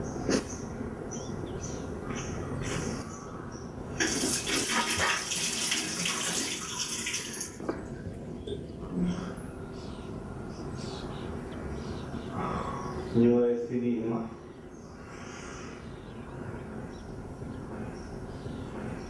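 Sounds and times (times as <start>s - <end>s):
water running: 4.0s - 7.6s.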